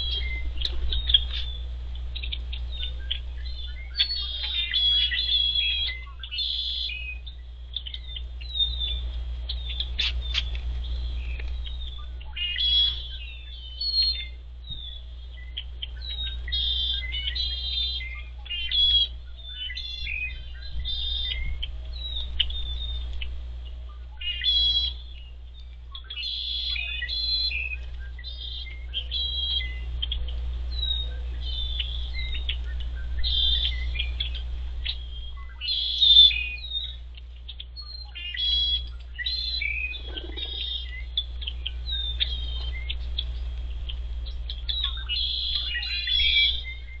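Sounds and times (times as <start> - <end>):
birds chirping and calling: 0.0 - 47.0
steady low hum: 0.0 - 47.0.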